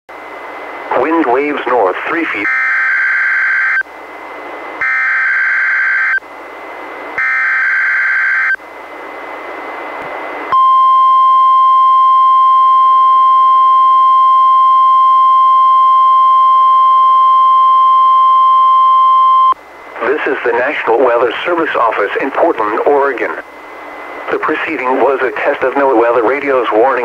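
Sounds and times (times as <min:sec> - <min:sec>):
radio hiss: 0:00.7 - 0:02.5, 0:19.9 - 0:27.0
steady high alarm beep: 0:02.4 - 0:03.8, 0:04.8 - 0:06.2, 0:07.2 - 0:08.6, 0:10.5 - 0:19.6.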